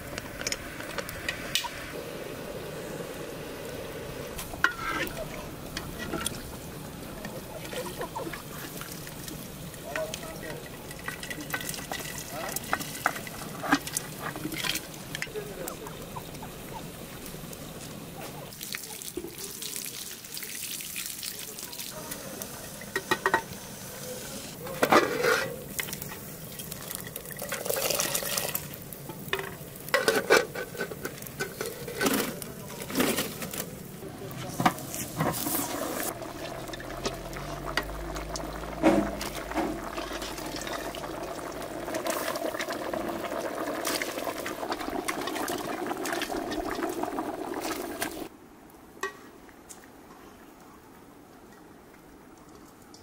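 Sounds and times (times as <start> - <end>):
quiet outdoor ambience: 0.0 - 53.0
metal pots and ladle clinking: 4.4 - 6.5, 7.2 - 15.3
liquid stirred and poured: 7.2 - 14.9, 35.2 - 48.3.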